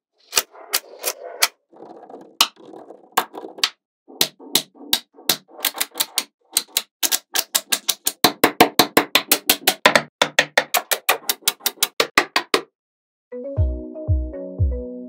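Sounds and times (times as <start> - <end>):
magnetic balls snapping together: 3.2 - 12.6.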